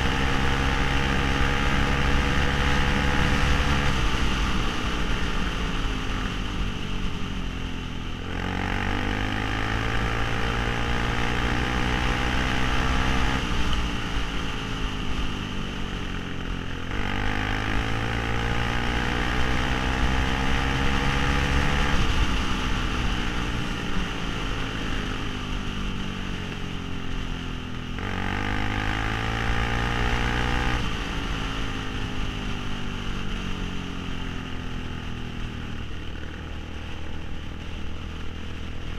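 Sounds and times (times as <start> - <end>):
quad engine revving: 8.3 - 13.4, 16.9 - 22.2, 28.0 - 30.8.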